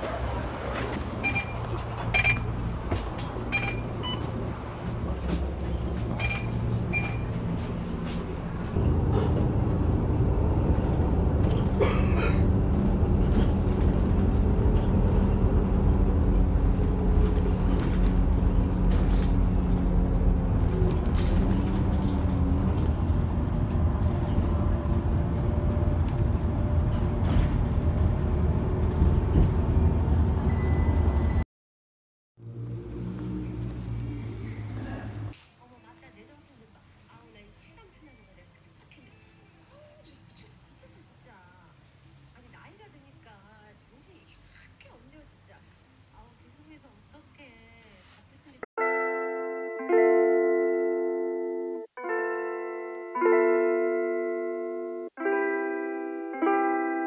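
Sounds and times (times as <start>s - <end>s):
bus engine running: 0.0s - 31.4s, 32.4s - 35.4s.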